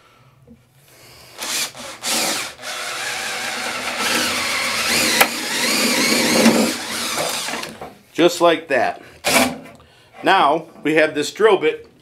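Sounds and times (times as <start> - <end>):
power drill boring through wood: 1.3 - 7.9.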